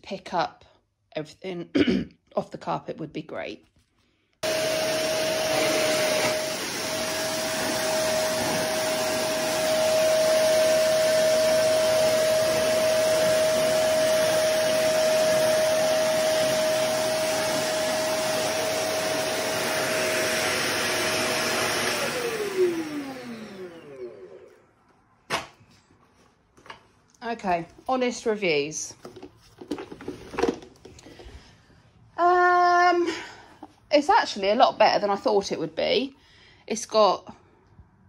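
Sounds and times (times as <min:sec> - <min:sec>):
vacuum cleaner running on carpet: 0:04.4 - 0:24.5.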